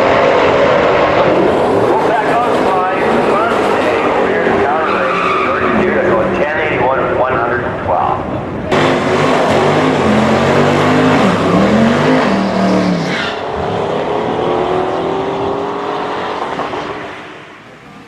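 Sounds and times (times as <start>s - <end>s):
tyres spinning and squealing: 0.0s - 6.7s, 8.8s - 13.6s
car engines revving hard: 0.0s - 7.2s, 8.5s - 18.0s.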